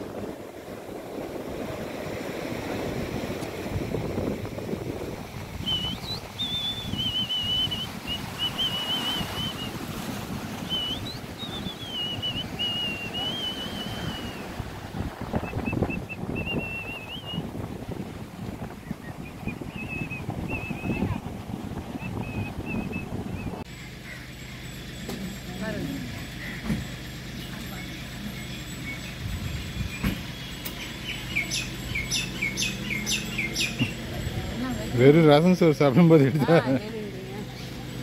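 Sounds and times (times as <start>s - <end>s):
surf breaking on beach: 0.0s - 23.3s
wind buffeting microphone: 0.0s - 23.7s, 28.6s - 35.2s
high wavering whistle: 5.6s - 10.0s, 10.6s - 14.7s, 15.4s - 17.5s, 19.0s - 21.2s, 27.7s - 34.8s.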